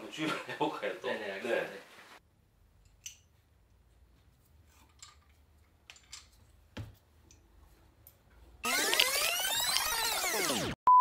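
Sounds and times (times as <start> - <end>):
metal parts clinking and knocking: 4.7 - 6.6.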